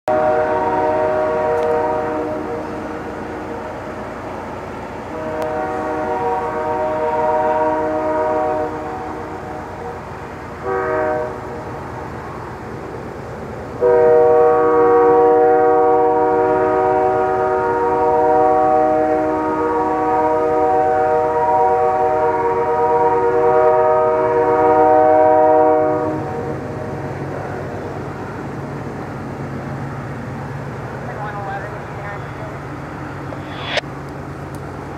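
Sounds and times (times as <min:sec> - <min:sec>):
locomotive horn blasts: 0:00.1 - 0:03.0, 0:05.0 - 0:11.6, 0:13.8 - 0:26.5
low rumble of locomotives: 0:00.1 - 0:34.9.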